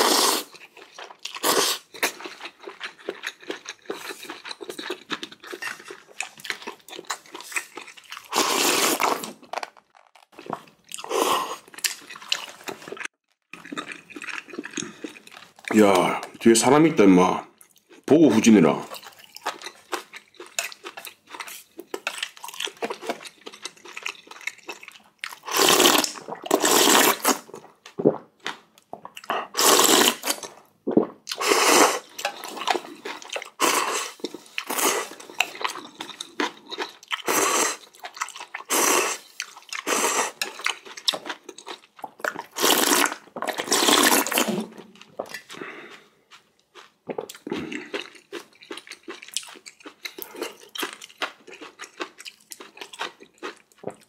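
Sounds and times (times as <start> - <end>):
person slurping noodles: 0.0 - 0.6, 1.3 - 2.3, 7.2 - 9.4, 10.4 - 13.1, 25.4 - 28.3, 29.2 - 40.6, 42.4 - 46.2
wet chewing: 0.4 - 16.4, 18.9 - 54.0.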